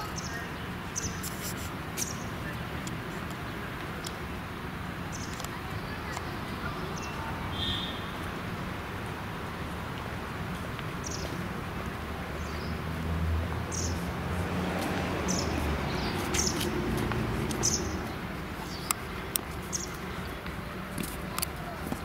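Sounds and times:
low background noise: 0.0s - 22.0s
small bird chirping: 19.6s - 20.0s.

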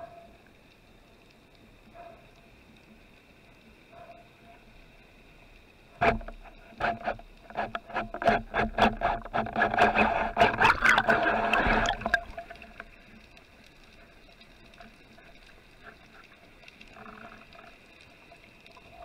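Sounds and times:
sharp clicks and knocks: 6.0s - 13.0s.

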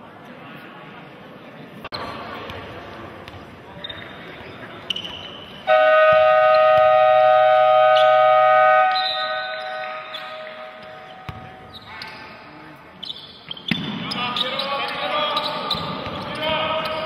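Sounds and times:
scoreboard horn blast: 5.7s - 11.2s
referee whistle tones: 5.7s - 11.9s.

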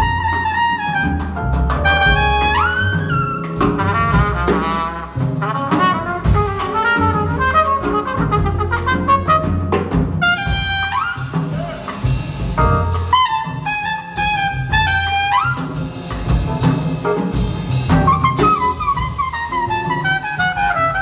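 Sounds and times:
trumpet solo: 0.0s - 11.7s, 13.1s - 15.7s, 18.1s - 21.0s
big band jazz: 0.0s - 21.0s.

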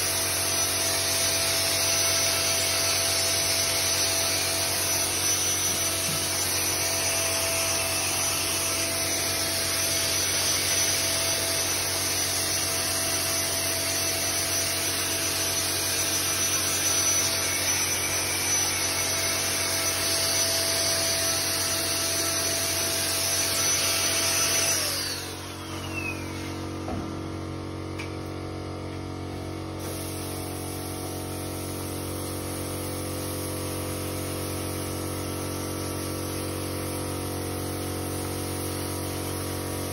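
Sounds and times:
spray equipment hiss and whine: 0.0s - 28.5s, 29.6s - 39.9s
low motor hum: 25.2s - 29.8s.

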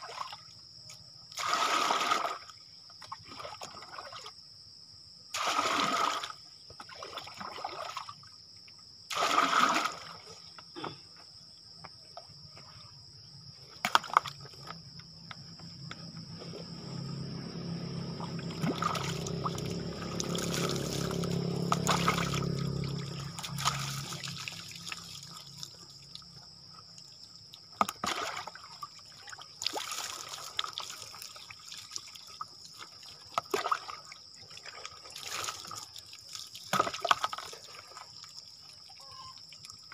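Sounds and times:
water splashing: 5.4s - 8.2s, 9.1s - 10.4s, 17.8s - 26.3s, 27.7s - 39.8s
water trickling: 18.1s - 39.9s
water pouring: 18.5s - 26.2s.

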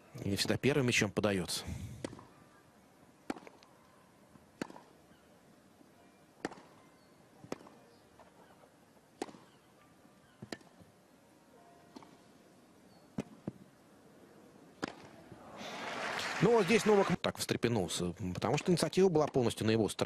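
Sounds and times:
rackets striking tennis ball: 2.0s - 2.4s, 3.2s - 3.8s, 4.5s - 5.1s, 6.3s - 10.9s, 11.8s - 12.3s, 13.1s - 13.7s, 14.7s - 15.3s, 18.5s - 19.5s.

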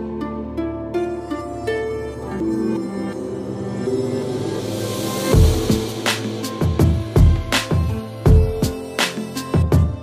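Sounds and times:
held synth notes: 0.0s - 9.3s
rising hiss: 3.1s - 8.3s.

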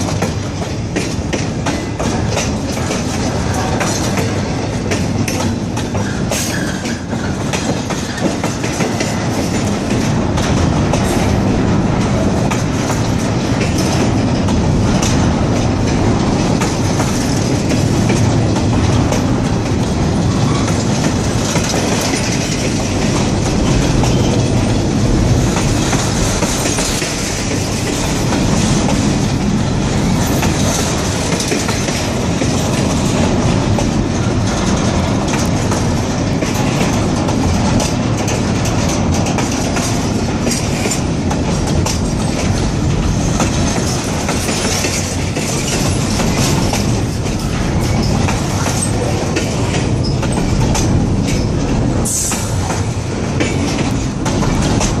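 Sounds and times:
rail cars creaking: 0.0s - 55.0s
train wheels clicking over rail joints: 0.0s - 55.0s.

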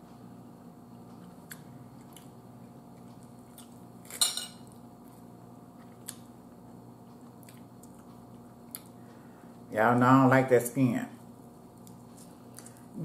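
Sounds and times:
faint room hum: 0.0s - 13.0s
cutlery clattering on a plate: 4.2s - 4.6s.

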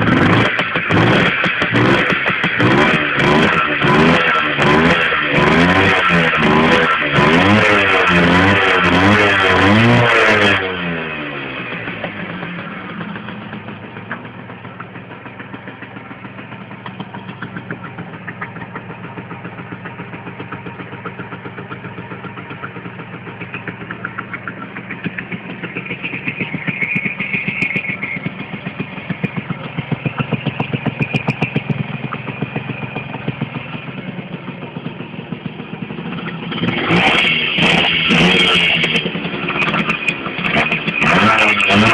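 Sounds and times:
two-stroke engine idling: 0.0s - 41.9s.

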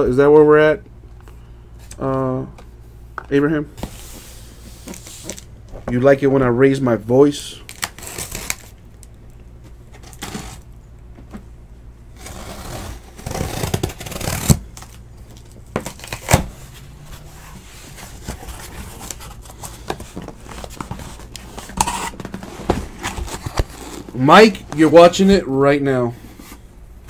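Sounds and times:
cardboard rustling: 12.2s - 25.3s.

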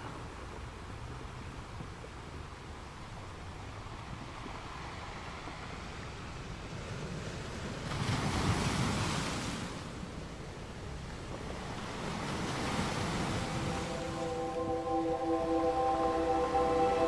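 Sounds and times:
ocean surf washing on shore: 11.1s - 17.0s
wave breaking: 11.9s - 17.0s.

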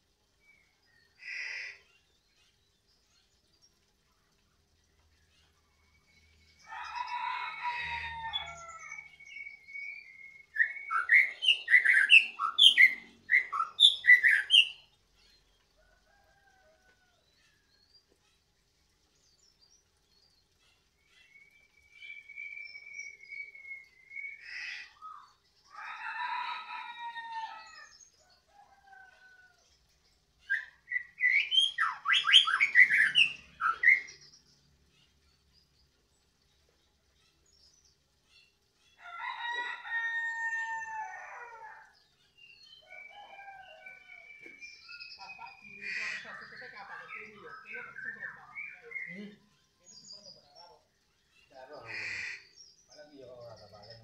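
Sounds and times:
songbird singing whistled phrases: 8.4s - 14.9s, 21.2s - 25.3s, 30.4s - 34.2s, 44.2s - 50.5s.

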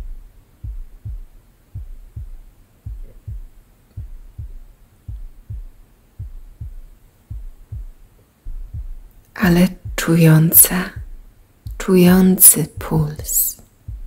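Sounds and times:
faint low hum: 0.0s - 14.0s
heartbeat thuds: 0.0s - 14.0s.

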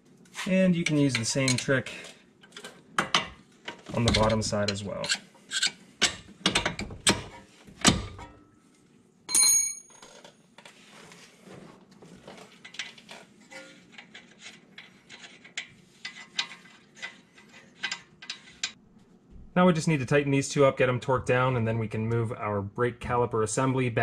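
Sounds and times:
ringing metal clink: 9.3s - 10.1s.

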